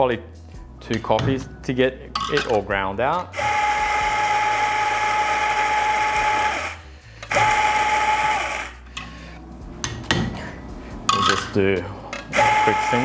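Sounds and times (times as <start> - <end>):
coffee grinder motor whining: 3.3 - 8.9, 12.2 - 13.0.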